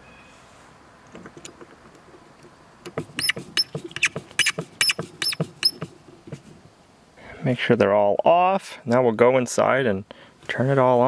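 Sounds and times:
screw squeaking: 0:02.9 - 0:06.0.

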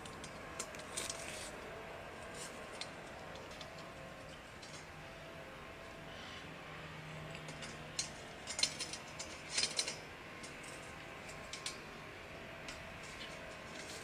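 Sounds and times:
light metallic clinks and scrapes: 0:00.0 - 0:05.4, 0:06.0 - 0:14.0.

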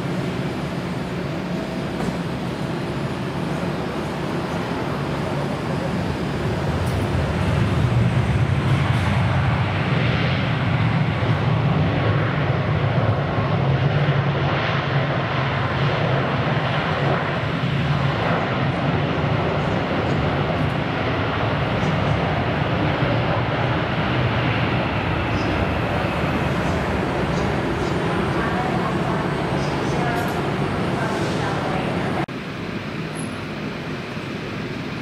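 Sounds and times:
jet engines roaring: 0:00.0 - 0:35.0.

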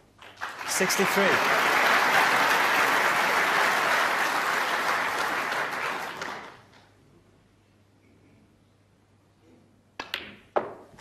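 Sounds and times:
audience applauding: 0:00.2 - 0:06.7.

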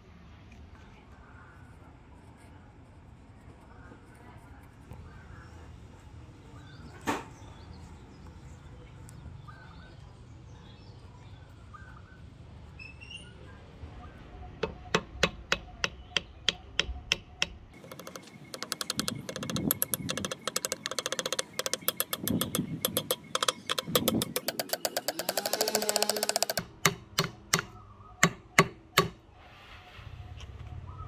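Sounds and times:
faint bird chirps: 0:04.9 - 0:26.6, 0:27.6 - 0:28.6
hammer tapping wooden wedge: 0:14.6 - 0:29.2.

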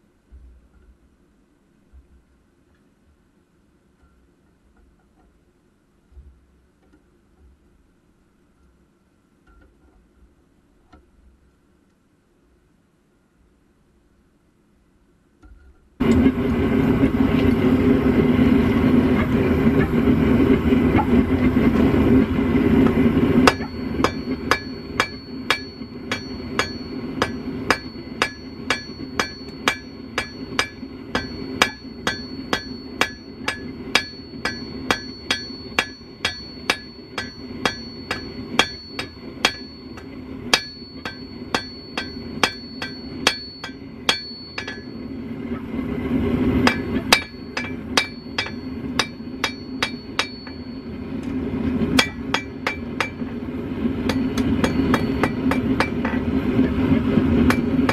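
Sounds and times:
forge burner rushing: 0:16.0 - 0:57.9
hammer striking steel on anvil: 0:22.8 - 0:45.2, 0:46.6 - 0:53.4, 0:54.0 - 0:57.9.

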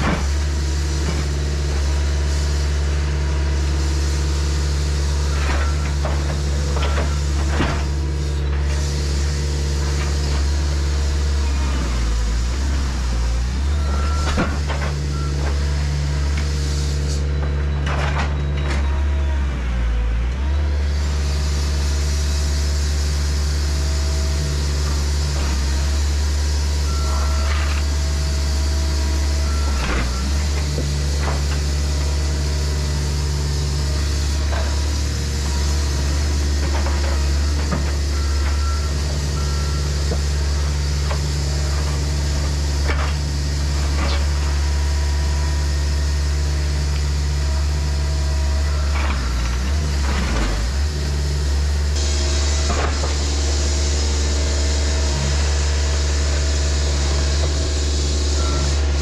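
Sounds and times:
diesel engine running under load: 0:00.0 - 0:59.0
short beeps: 0:26.8 - 0:27.8.

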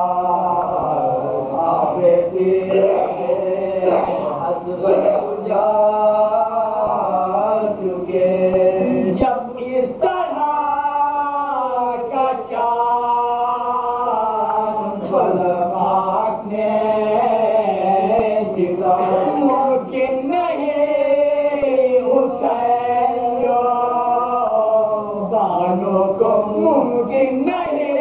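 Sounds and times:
men singing unaccompanied: 0:00.0 - 0:28.0.

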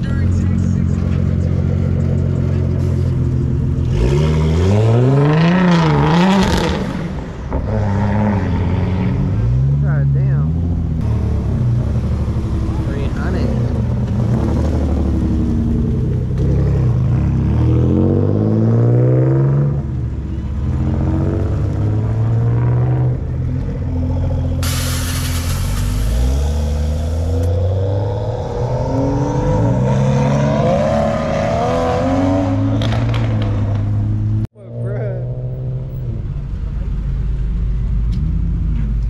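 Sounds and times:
car engines revving: 0:00.0 - 0:39.0
loud hiss: 0:24.6 - 0:27.4.

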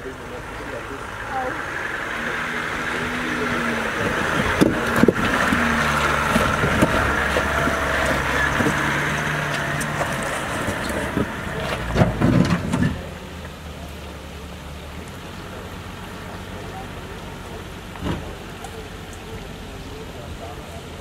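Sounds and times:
diesel engine pulling: 0:00.0 - 0:21.0
tyres grinding over rocks: 0:00.4 - 0:13.7
rocks knocking and crunching: 0:04.0 - 0:13.6.

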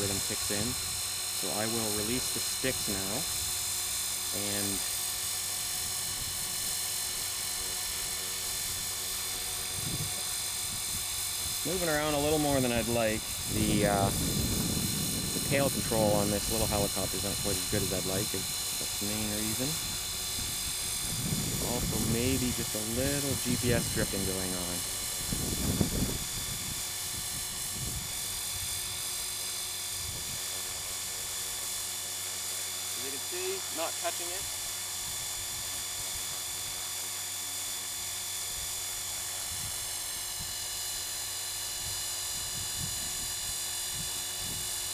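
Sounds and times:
rc helicopter rotor whine: 0:00.0 - 0:44.9
wind buffeting on microphone: 0:05.6 - 0:31.4, 0:38.4 - 0:40.9, 0:41.7 - 0:44.9.

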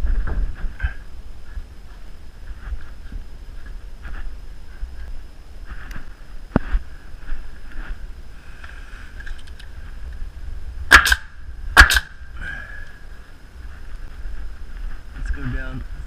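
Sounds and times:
nailer firing into wood: 0:10.9 - 0:12.1.

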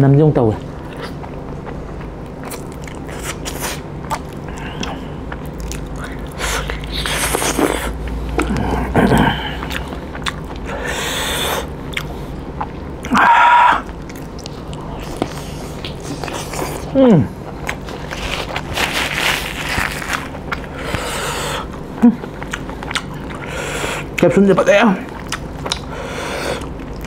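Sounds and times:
wet chewing: 0:00.6 - 0:24.3, 0:25.0 - 0:27.0
lip smacks: 0:25.2 - 0:25.9.

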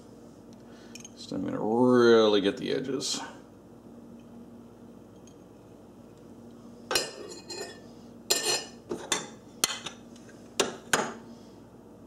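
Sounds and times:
knife clinking and scraping ceramic: 0:06.9 - 0:10.0.

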